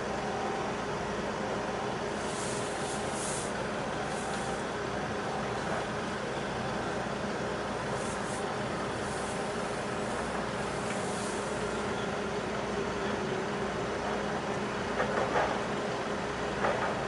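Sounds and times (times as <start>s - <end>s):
ship engines droning: 0.0s - 17.0s
faint hissing puffs: 2.1s - 4.8s, 7.8s - 11.9s.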